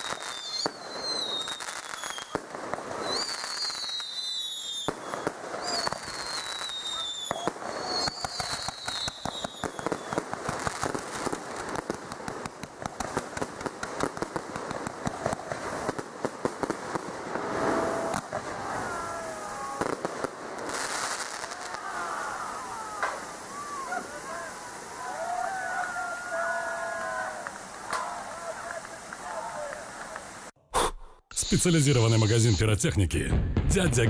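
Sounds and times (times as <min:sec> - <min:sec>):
firework whistles falling in pitch: 0:00.0 - 0:10.3
firework pops and bangs: 0:00.0 - 0:24.5, 0:26.8 - 0:30.6.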